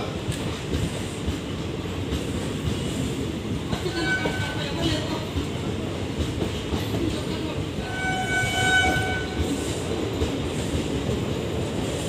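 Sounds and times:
train coaches rumbling and clattering: 0.0s - 12.0s
train horn: 3.9s - 4.6s, 7.8s - 9.5s.

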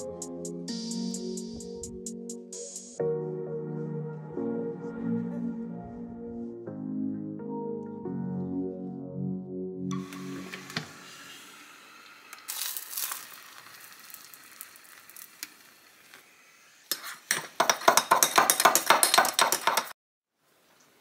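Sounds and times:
hot water pouring into mug: 9.9s - 16.4s
metal spoon clinking in mug: 16.9s - 19.9s.

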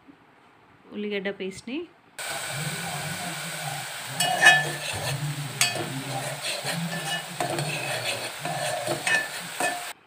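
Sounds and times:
paste sizzling in hot oil: 2.2s - 10.0s
spoon scraping metal pot: 4.1s - 10.0s.

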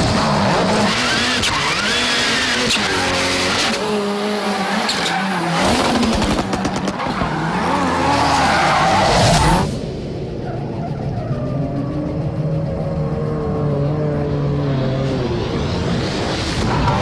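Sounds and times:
rally car engine revving: 0.0s - 17.0s
tyres squealing and skidding: 0.3s - 3.8s, 4.4s - 9.7s, 16.2s - 17.0s.

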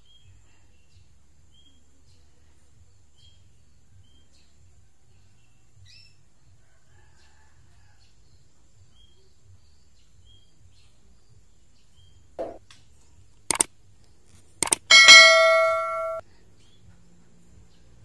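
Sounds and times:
mouse clicks: 14.6s - 14.9s.

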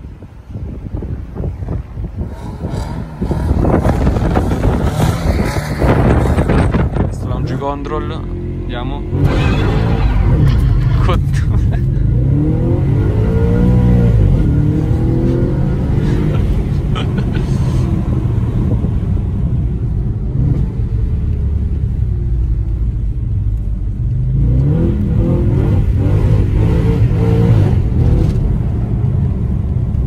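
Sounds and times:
car engine revving inside cabin: 11.3s - 17.4s, 24.1s - 29.6s.

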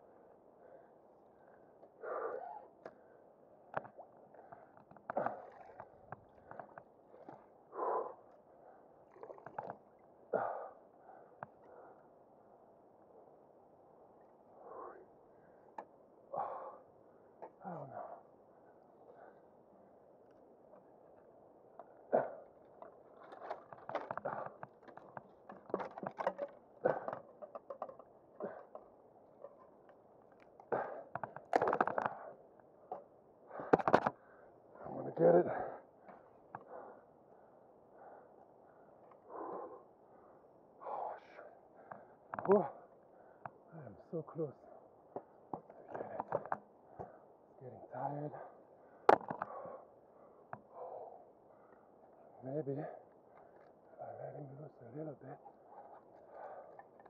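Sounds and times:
person breathing heavily: 10.3s - 12.2s, 16.3s - 16.9s, 30.7s - 31.1s, 36.6s - 42.2s, 55.7s - 57.0s
wood knocking and snapping: 23.2s - 28.8s.

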